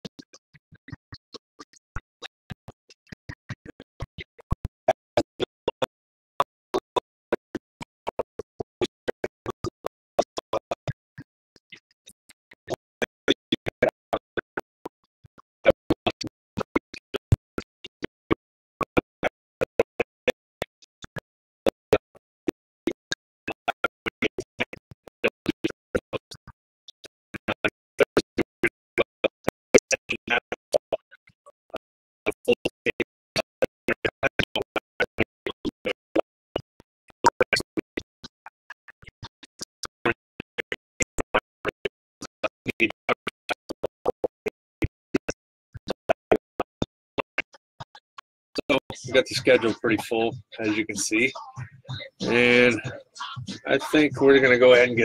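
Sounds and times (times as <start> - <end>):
choppy livestream audio fragments: 39.8 - 55.0.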